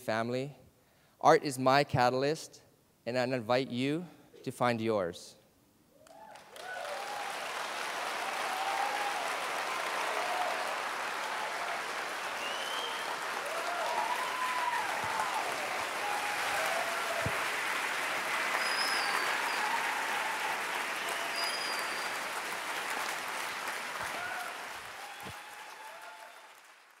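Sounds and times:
audience applauding: 6.0 - 27.0.

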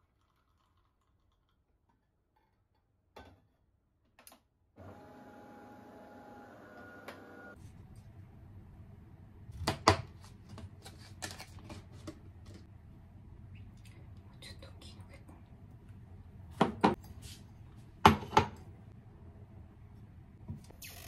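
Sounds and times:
espresso machine humming: 4.8 - 7.6.

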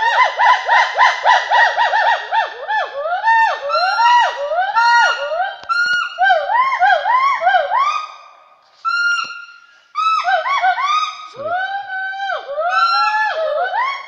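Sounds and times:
gibbons whooping calls: 0.0 - 8.1, 10.0 - 14.0.

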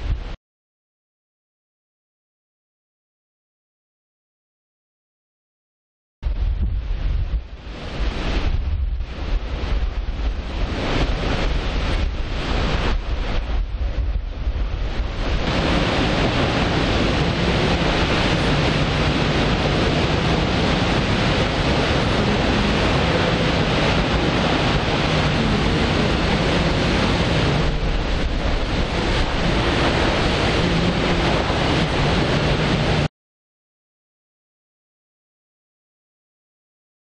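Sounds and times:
waterfall rushing: 15.0 - 33.1.

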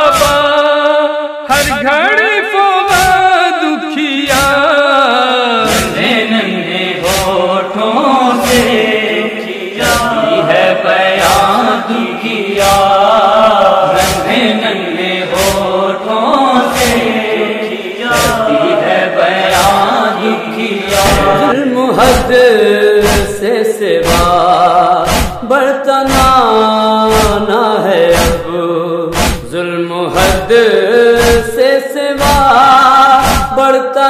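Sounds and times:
heavy chest-beating rhythm: 0.0 - 0.6, 2.9 - 3.4, 4.2 - 4.9, 5.6 - 9.1, 9.8 - 11.8, 12.5 - 17.4, 18.0 - 20.1, 20.8 - 33.7
men chanting a lament: 0.0 - 34.0.

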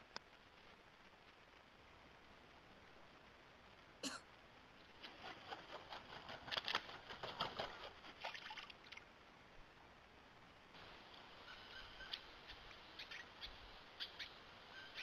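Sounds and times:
bird splashing in water: 6.4 - 9.0.

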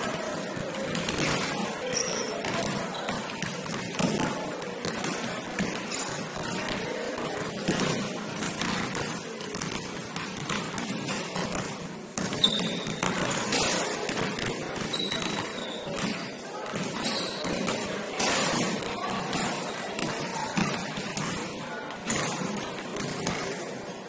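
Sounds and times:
basketball bouncing on court: 0.0 - 23.6
players' voices in large hall: 0.0 - 24.0
sneaker squeaks: 0.9 - 3.4, 5.2 - 6.5, 12.2 - 14.0, 14.8 - 18.7, 19.4 - 20.9.

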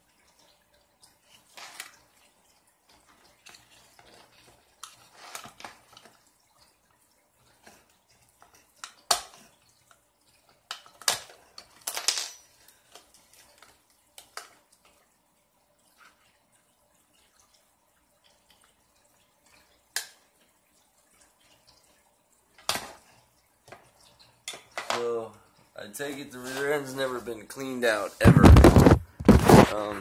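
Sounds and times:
small parts clinking on a surface: 11.8 - 12.6.

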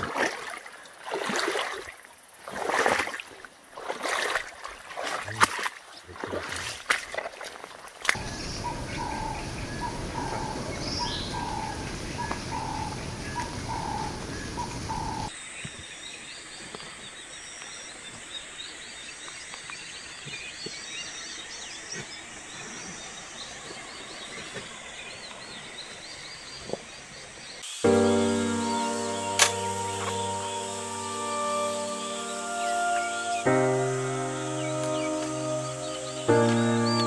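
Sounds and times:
water rushing: 0.0 - 15.3
small birds chirping: 8.0 - 37.0.

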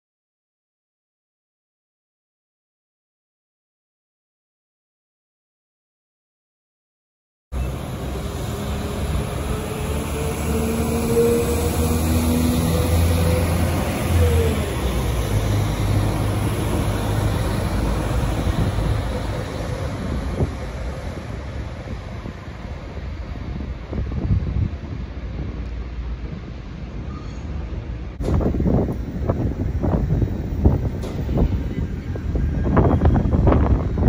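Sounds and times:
passenger train pulling away: 7.6 - 34.0.

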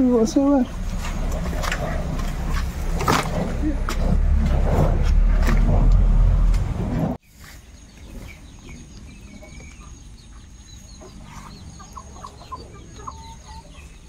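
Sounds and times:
birds chirping: 0.0 - 4.1, 7.2 - 14.0.

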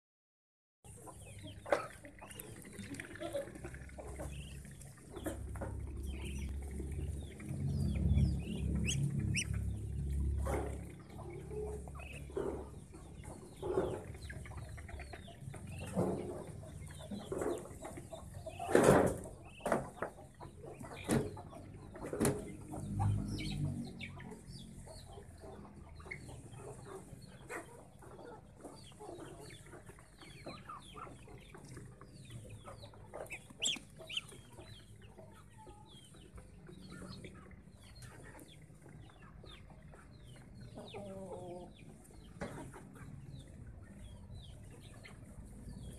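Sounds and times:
chickens clucking: 0.9 - 45.9
high peeping calls: 4.2 - 16.0, 30.3 - 36.2.

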